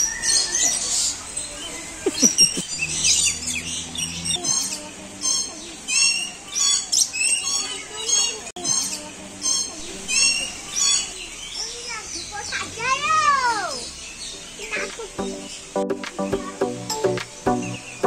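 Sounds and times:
birds chirping: 0.0 - 18.0.

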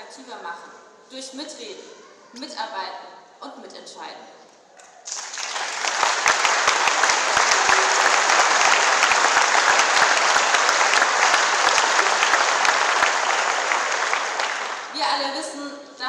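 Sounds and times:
audience applauding: 5.0 - 15.2.

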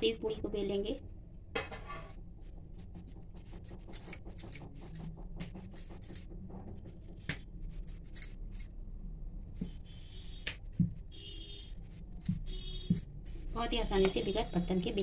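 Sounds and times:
rolling pin on stone board: 1.6 - 7.4.

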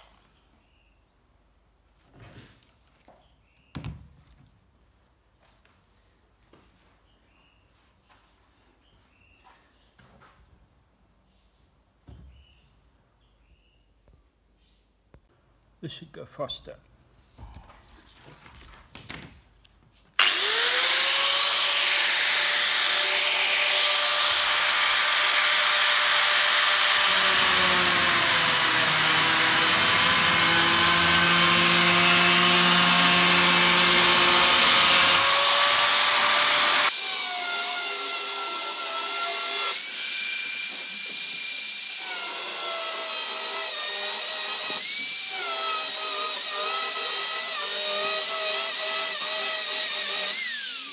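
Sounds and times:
oscillating multi-tool cutting plastic: 20.2 - 50.9.

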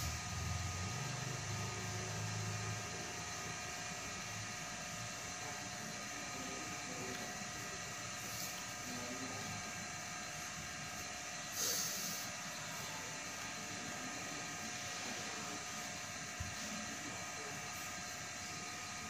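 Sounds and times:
room hum: 0.0 - 19.0.

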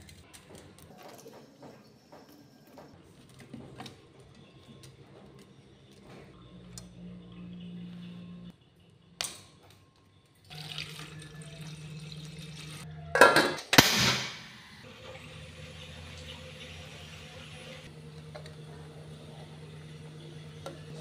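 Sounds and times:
water poured into steel pot: 10.5 - 12.8.

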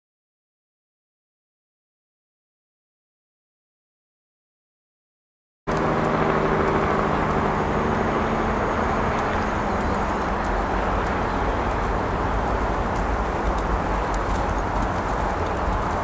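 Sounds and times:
low hum: 5.7 - 16.0
outdoor rushing with deep rumble: 5.7 - 16.0
horse hoofbeats on sand: 5.8 - 16.0.

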